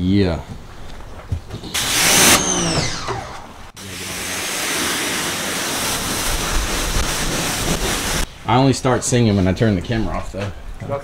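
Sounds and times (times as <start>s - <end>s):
spraying water hissing: 1.7s - 2.7s, 3.7s - 8.3s.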